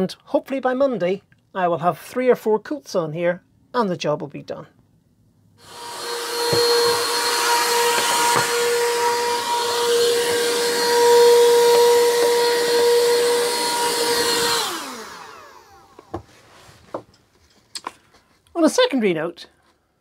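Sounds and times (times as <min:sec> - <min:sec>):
vacuum cleaner motor whine: 0:05.6 - 0:16.3.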